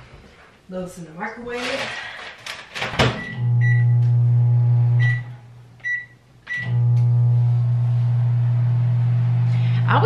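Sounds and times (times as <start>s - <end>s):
microwave short beeps: 3.2s - 4.0s, 5.0s - 6.9s
microwave oven humming: 3.2s - 10.0s.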